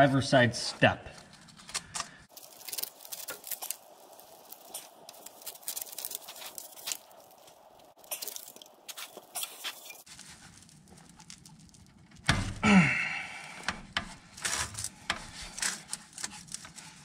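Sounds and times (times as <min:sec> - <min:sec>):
metal clicks and scrapes: 0:13.6 - 0:17.0.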